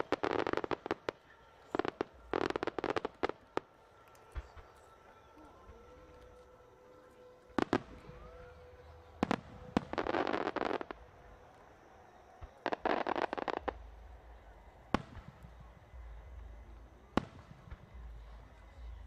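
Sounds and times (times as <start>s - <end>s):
rapid firework crackling: 0.0s - 4.6s.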